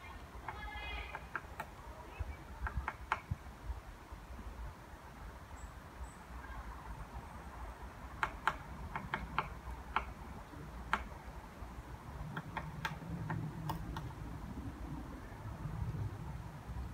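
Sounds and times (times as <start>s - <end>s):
woodpecker tapping on wood: 0.4s - 1.8s, 2.6s - 3.4s, 8.1s - 10.2s, 10.8s - 11.3s, 12.2s - 14.2s.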